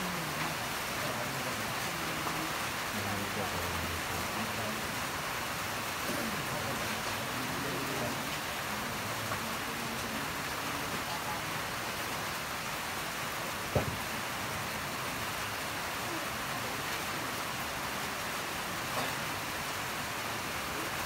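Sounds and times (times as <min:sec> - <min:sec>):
rain falling: 0:00.0 - 0:21.0
short knock: 0:13.7 - 0:14.0.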